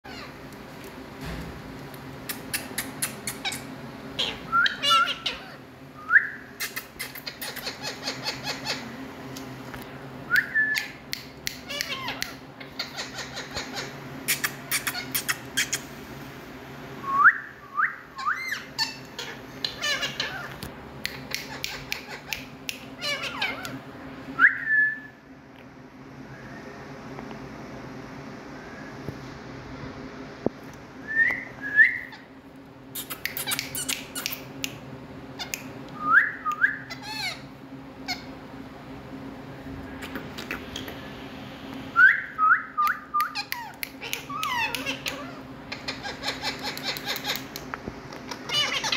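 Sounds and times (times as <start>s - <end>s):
parakeet whistles and squawks: 0.1s - 0.4s, 2.3s - 8.9s, 11.6s - 15.9s, 17.4s - 23.8s, 31.8s - 32.3s, 33.0s - 34.4s, 36.1s - 38.3s, 42.0s - 47.6s, 48.3s - 48.9s
parakeet clicking chatter: 2.2s - 5.6s, 6.6s - 8.9s, 10.8s - 15.9s, 18.4s - 23.8s, 33.0s - 34.8s, 35.4s - 35.8s, 42.9s - 48.9s.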